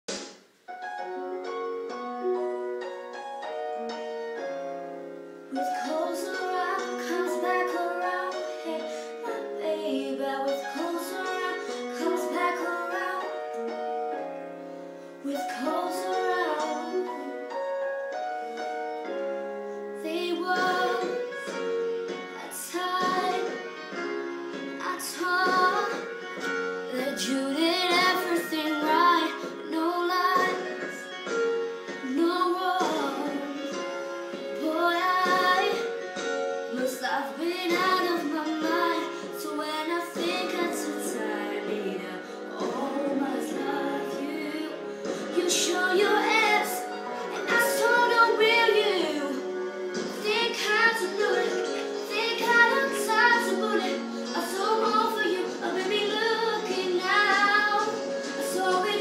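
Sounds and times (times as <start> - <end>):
girl singing: 5.5 - 13.5, 15.2 - 17.4, 20.0 - 21.6, 22.3 - 23.6, 24.8 - 26.2, 26.9 - 31.1, 32.0 - 36.0, 36.7 - 59.0.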